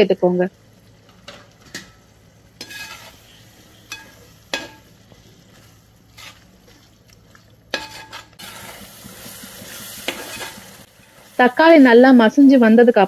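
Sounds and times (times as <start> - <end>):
masala sizzling: 0.0 - 13.0
spatula scraping metal pot: 2.6 - 4.8, 7.7 - 10.8.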